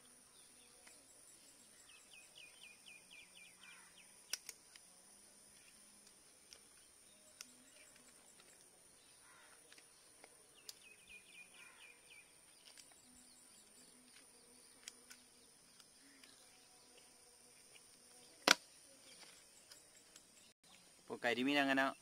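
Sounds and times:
bird chirping: 0.0 - 22.0
high drone of insects: 0.0 - 22.0
sharp click: 4.3 - 4.8.

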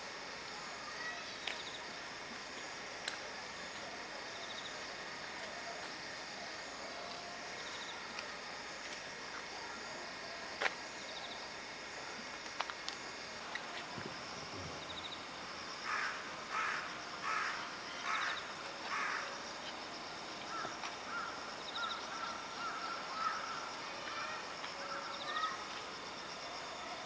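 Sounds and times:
insects buzzing: 0.0 - 27.0
crow cawing: 15.8 - 19.3, 20.5 - 23.6.

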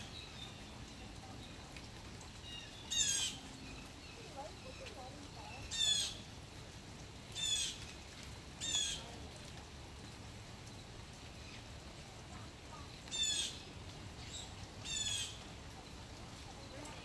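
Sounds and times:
blue jay harsh calls: 2.4 - 4.9, 5.5 - 6.3, 7.4 - 7.8, 8.6 - 9.2, 13.1 - 15.5.

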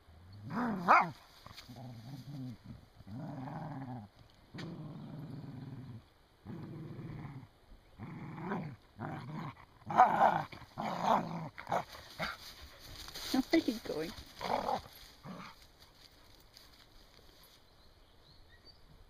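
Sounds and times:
dogs growling: 0.4 - 12.4, 14.4 - 15.6.

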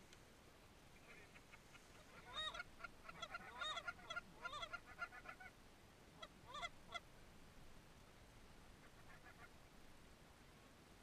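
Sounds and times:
geese honking: 1.1 - 5.5, 6.2 - 7.0, 8.8 - 9.5.

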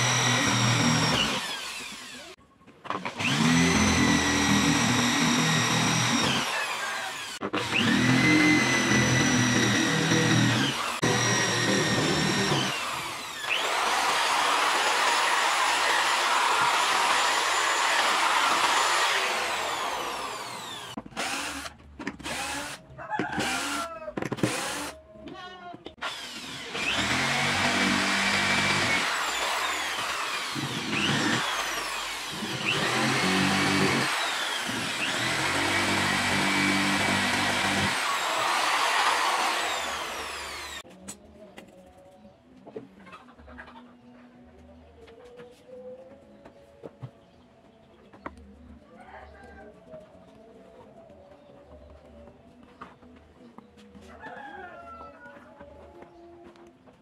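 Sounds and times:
electric drill boring into wood: 0.0 - 22.8, 23.4 - 25.0, 26.0 - 40.8.

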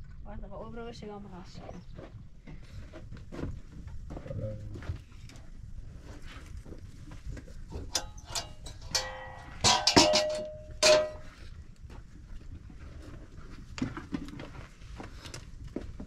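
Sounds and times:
metal cookware clanking: 7.9 - 11.3.

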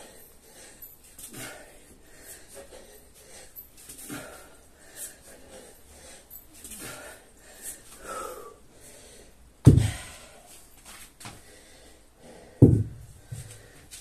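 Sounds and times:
hard breathing: 0.0 - 14.0
weight slamming onto rubber mat: 9.7 - 10.1, 12.6 - 13.0.

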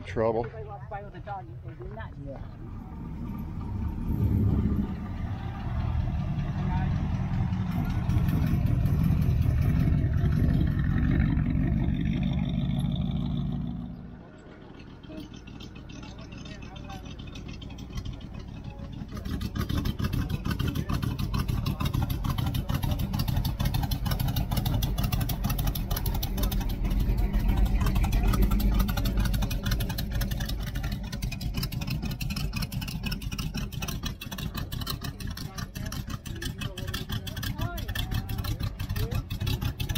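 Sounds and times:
truck engine rumbling past: 0.0 - 39.9.

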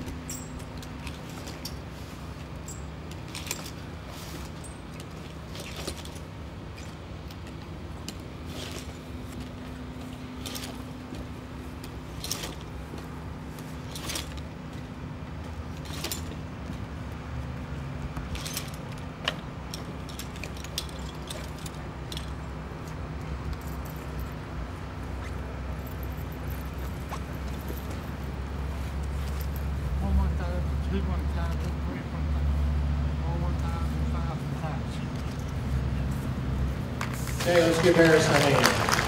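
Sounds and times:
metal climbing gear clinking: 0.0 - 16.9, 18.2 - 29.8, 35.2 - 35.7
truck engines idling: 0.0 - 39.0.

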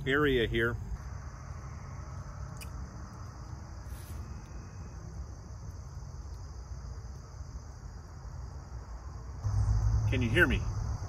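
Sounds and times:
crickets and insects chirping: 0.0 - 11.0
brief hiss: 3.8 - 4.4
low rumble: 9.4 - 11.0.

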